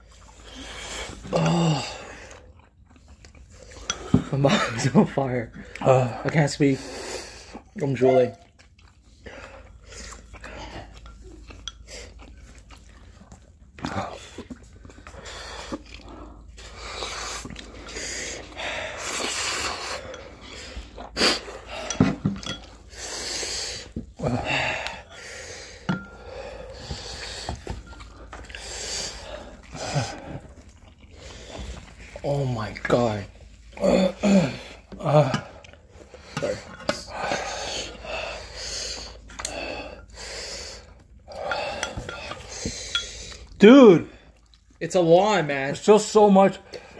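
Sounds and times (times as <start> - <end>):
noodles being slurped and chewed: 0.0 - 45.1
person gasping: 1.2 - 2.2
heavy mouth breathing: 9.0 - 32.2, 33.4 - 44.6
people panting heavily: 15.1 - 31.9, 33.8 - 43.4.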